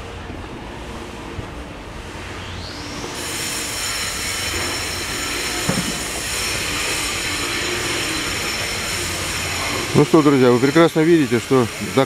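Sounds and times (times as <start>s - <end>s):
loud hissing machine noise: 0.0s - 12.0s
short knock: 5.7s - 6.1s.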